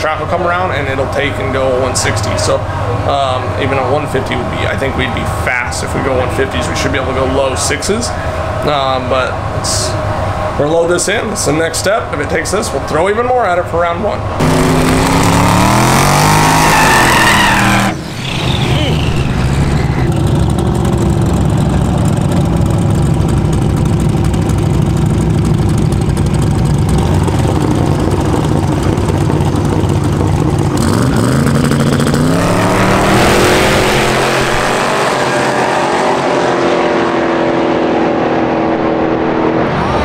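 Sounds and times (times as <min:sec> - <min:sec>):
drag car engines revving: 0:00.0 - 0:40.0.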